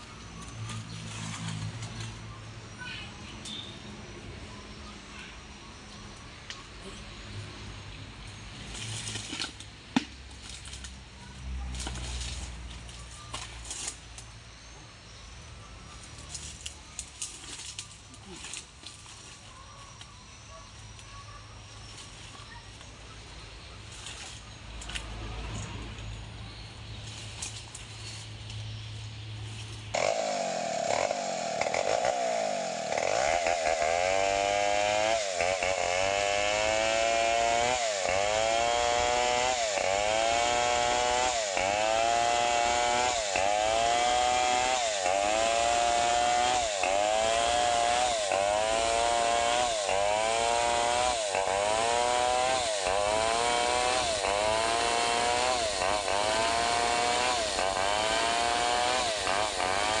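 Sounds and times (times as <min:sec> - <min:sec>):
chainsaw ripping along log: 0:29.9 - 1:00.0.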